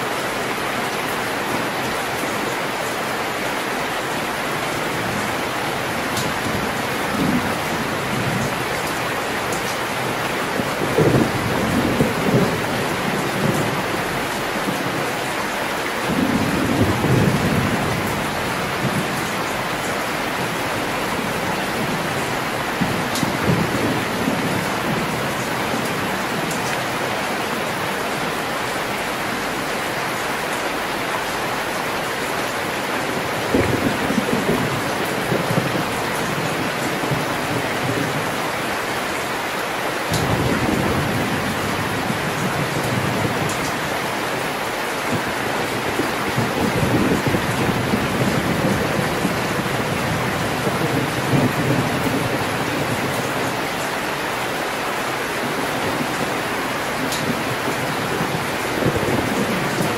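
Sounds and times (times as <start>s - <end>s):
heavy rain: 0.0s - 59.9s
low rolls of thunder: 6.2s - 8.7s, 10.0s - 15.0s, 16.0s - 26.8s, 33.2s - 38.3s.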